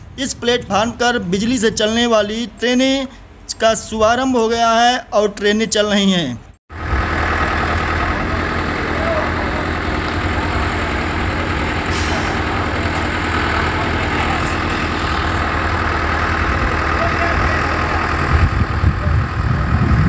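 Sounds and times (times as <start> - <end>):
heavy engine idling: 6.7 - 20.0.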